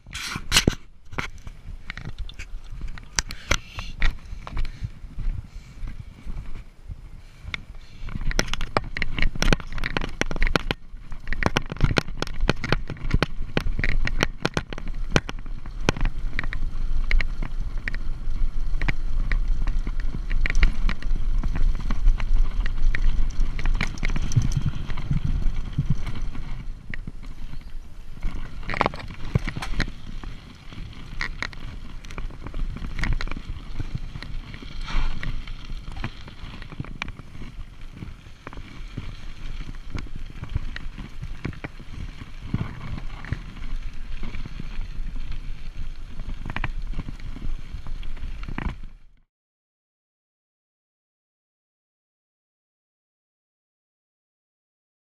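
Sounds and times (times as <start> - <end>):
wind rumble on microphone: 0.0 - 49.2
bike chain and frame rattling: 7.8 - 49.0.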